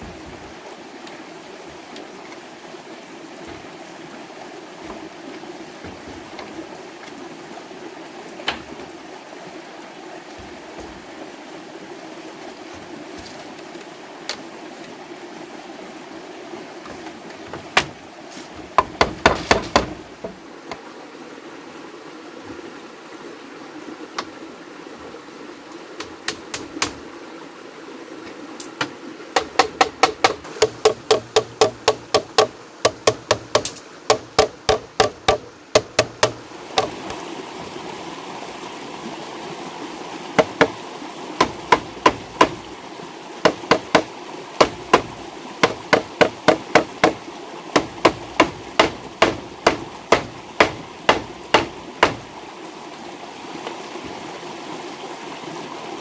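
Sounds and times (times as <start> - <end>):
wooden mallet knocking on bamboo: 16.9 - 18.0, 18.7 - 20.4, 28.8 - 37.2, 40.4 - 40.8, 41.4 - 42.6, 43.4 - 47.2, 47.8 - 52.3.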